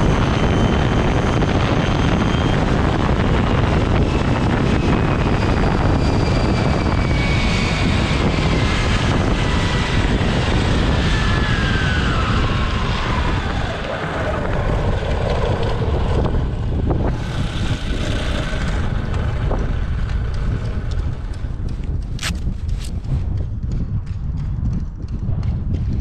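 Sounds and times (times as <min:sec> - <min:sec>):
electric motor whine: 0:00.0 - 0:22.9
wind buffeting microphone: 0:00.0 - 0:26.0
sharp clicks: 0:18.6 - 0:25.9.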